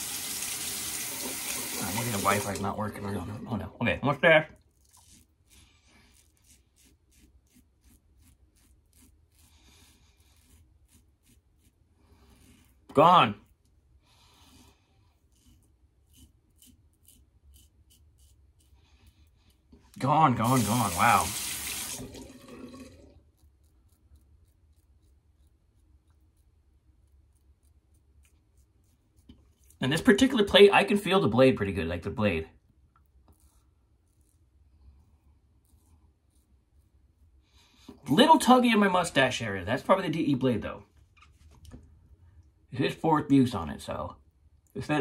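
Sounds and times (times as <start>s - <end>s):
razor scraping stubble: 4.6s - 13.7s, 15.1s - 19.4s, 23.2s - 30.4s.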